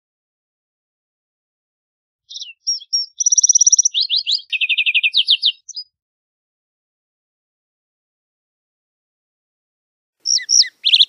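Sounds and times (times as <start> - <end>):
sparrow singing: 2.3 - 6.0, 10.2 - 11.0.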